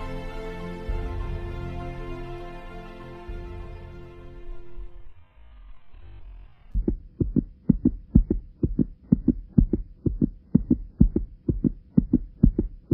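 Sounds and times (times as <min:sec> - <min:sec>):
heartbeat thumps: 0:06.8 - 0:12.9.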